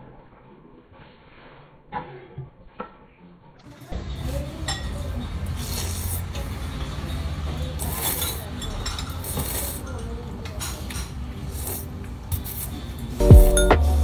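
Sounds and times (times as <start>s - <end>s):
noodles being slurped: 7.8s - 8.5s, 9.1s - 9.9s.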